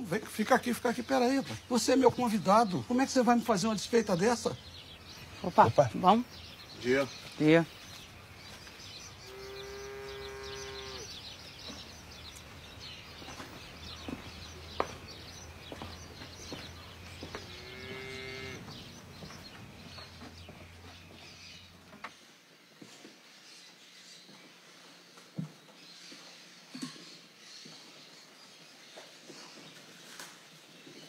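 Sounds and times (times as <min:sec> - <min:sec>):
cattle mooing: 0:09.2 - 0:11.2, 0:17.4 - 0:18.7.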